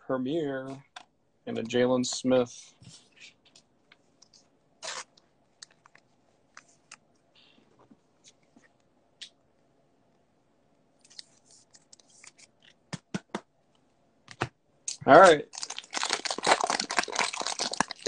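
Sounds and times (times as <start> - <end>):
cards and foil wrappers crinkling: 15.1 - 18.0.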